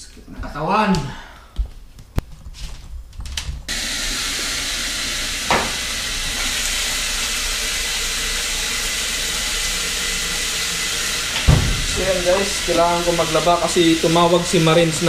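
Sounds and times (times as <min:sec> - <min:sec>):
water pouring into washing machine: 0:03.7 - 0:15.0.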